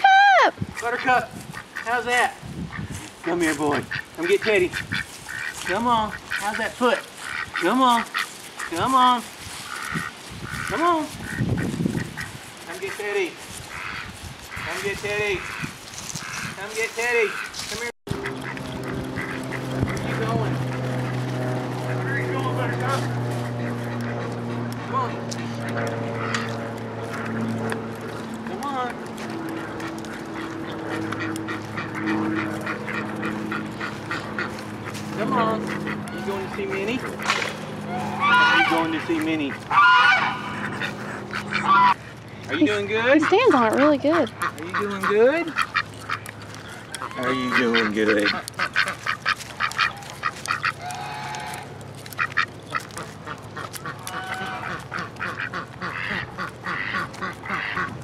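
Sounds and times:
duck quacking: 0.7 - 58.0
low hum: 17.6 - 42.5.

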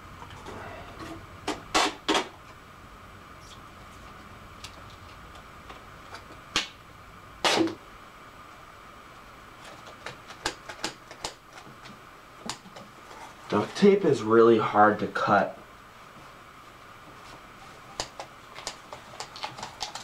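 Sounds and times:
duct tape ripping off roll: 7.4 - 7.8.

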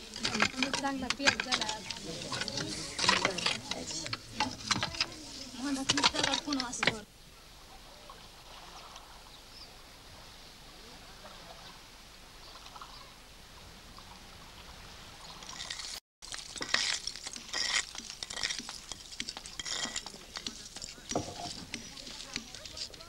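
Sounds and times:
hand scraping stones and grit: 0.0 - 7.0, 15.4 - 23.0
water splashing and trickling: 13.9 - 23.0.

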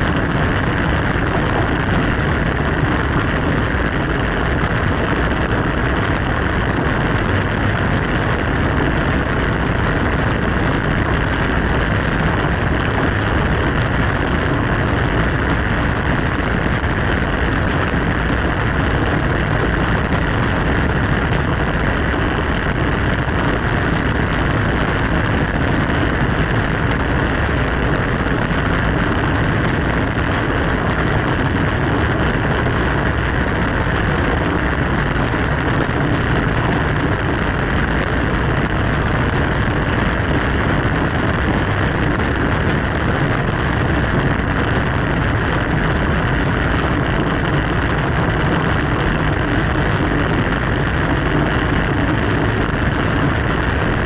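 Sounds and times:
road noise: 0.0 - 54.0
wind rush: 0.0 - 54.0.

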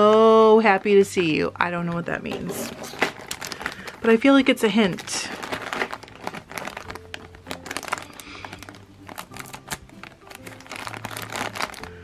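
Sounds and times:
light background music: 0.0 - 12.0
plastic bag crinkling: 2.4 - 12.0
scissors cutting plastic: 2.7 - 4.1, 5.2 - 12.0.

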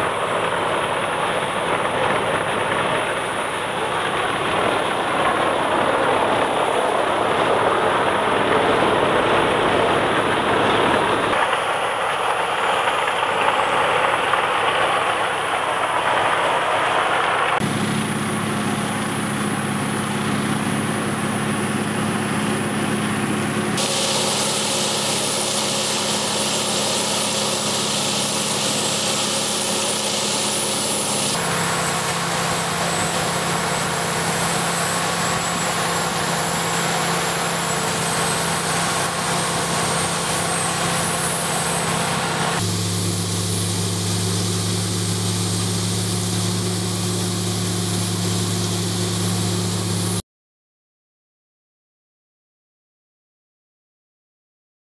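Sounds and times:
wood chipper running: 0.0 - 50.2.

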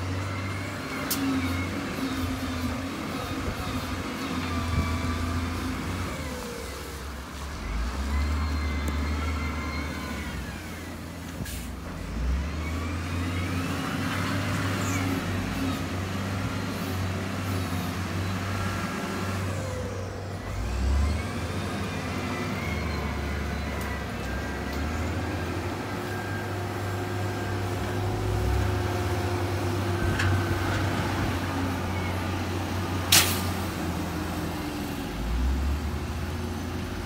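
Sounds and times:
diesel earthmoving machine rumbling: 0.0 - 37.0.

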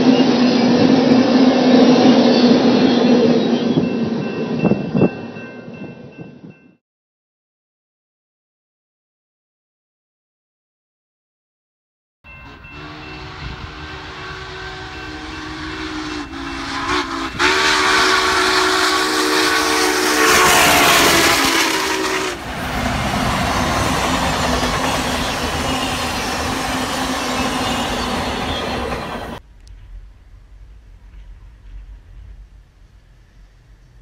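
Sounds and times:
rumble of train rolling past: 0.0 - 6.8, 12.3 - 34.0
steam locomotive chime whistle: 0.0 - 6.8, 12.3 - 29.4.

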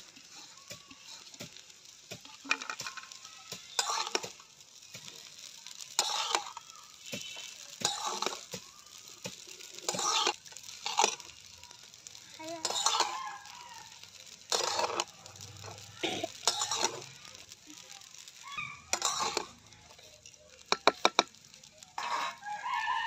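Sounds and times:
faint frying sizzle: 0.0 - 23.0
metal spatula scraping pan: 0.1 - 4.4, 5.8 - 8.5, 9.3 - 11.4, 12.6 - 17.2, 18.2 - 20.0, 21.9 - 23.0.

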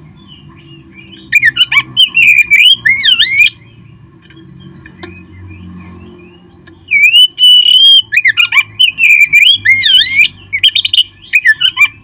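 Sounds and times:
bird singing whistled phrases: 1.0 - 3.6, 5.0 - 12.0.

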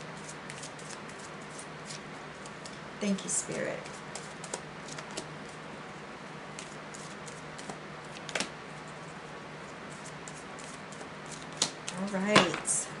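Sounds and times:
cards being shuffled: 0.2 - 2.8, 3.8 - 5.6, 6.6 - 8.5.

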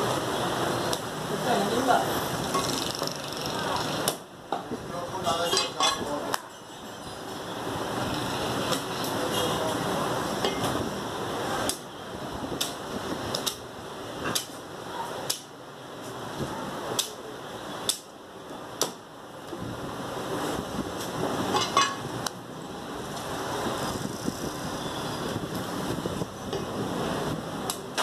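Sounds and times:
steady background noise: 0.0 - 28.0.

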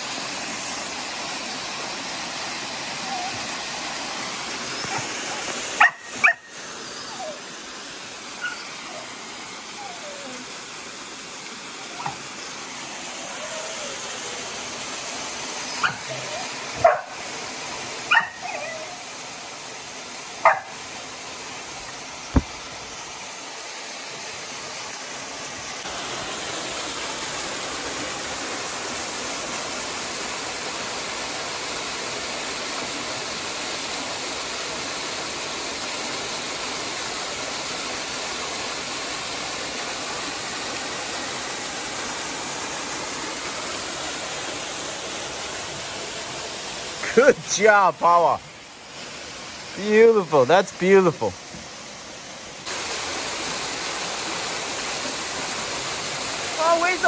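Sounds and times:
small waterfall rushing: 0.0 - 57.0
dog yelping: 3.0 - 3.5, 4.8 - 7.4, 8.4 - 9.1, 9.7 - 10.5, 11.8 - 12.2, 13.3 - 14.3, 15.6 - 17.1, 18.1 - 19.1, 20.4 - 20.7.

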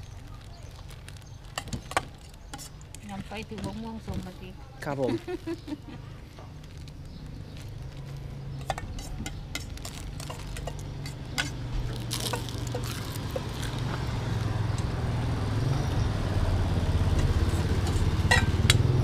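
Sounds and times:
motorcycle engine idling: 6.8 - 19.0.

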